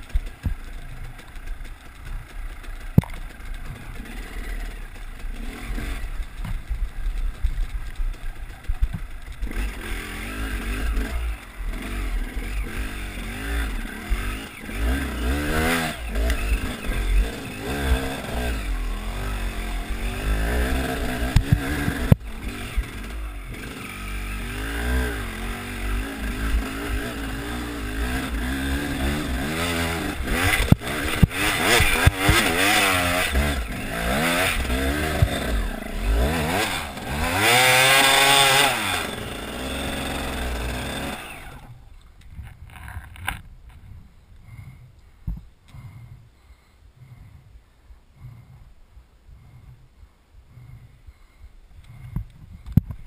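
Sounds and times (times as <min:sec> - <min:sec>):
dirt bike engine revving: 0:00.0 - 0:41.8
heavy low rumble: 0:41.4 - 0:53.0.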